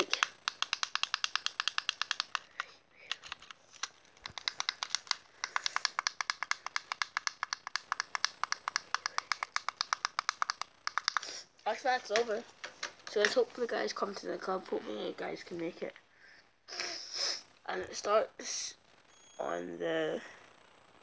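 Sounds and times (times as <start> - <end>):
controller button clicks: 3.1 - 11.3.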